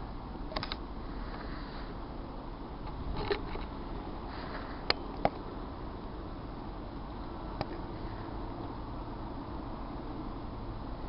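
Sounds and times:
low background hiss and rumble: 0.0s - 11.0s
sharp clicks: 0.5s - 0.8s.

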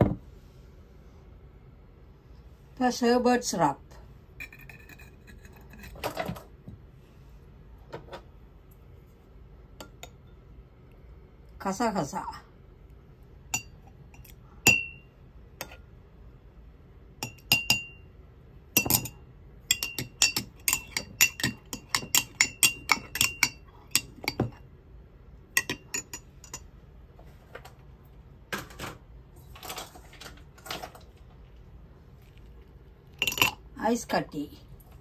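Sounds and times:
spoon clinking against glass: 13.5s - 15.0s, 17.2s - 18.0s, 18.8s - 24.6s, 25.6s - 26.7s, 33.2s - 33.6s.

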